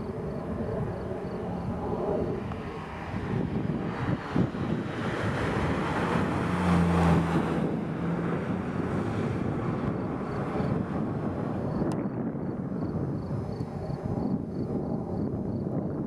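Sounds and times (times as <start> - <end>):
car passing by: 0.6 - 11.9.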